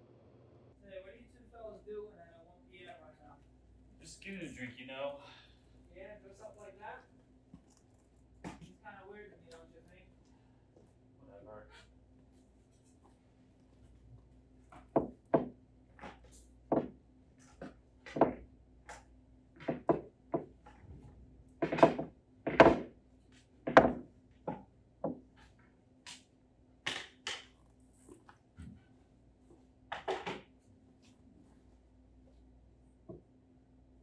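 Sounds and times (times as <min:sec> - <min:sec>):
faint steady hum: 0:00.0 - 0:34.0
billiard balls clacking: 0:14.8 - 0:17.0, 0:17.6 - 0:20.9, 0:21.6 - 0:26.2, 0:26.9 - 0:27.7, 0:29.9 - 0:30.5.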